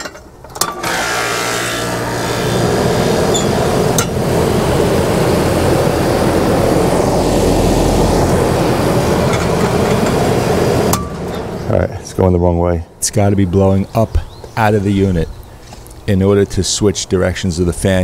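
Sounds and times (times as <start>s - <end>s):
fan motor humming: 0.4s - 18.0s
rushing air: 2.0s - 12.3s.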